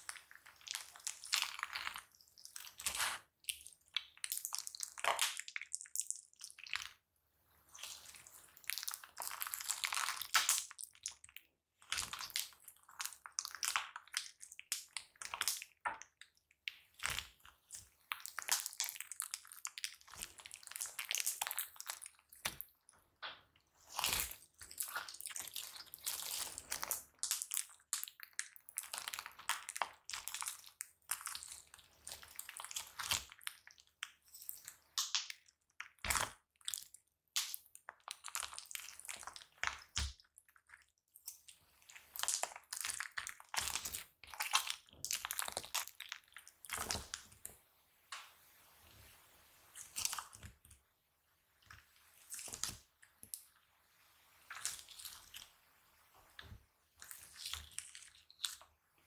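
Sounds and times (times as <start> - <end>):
slime squishing and popping: 7.8 - 22.7, 42.0 - 47.4.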